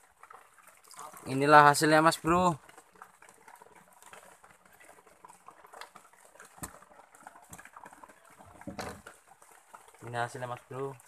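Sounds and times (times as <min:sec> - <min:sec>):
net crackling and tapping: 0:00.0 - 0:11.0.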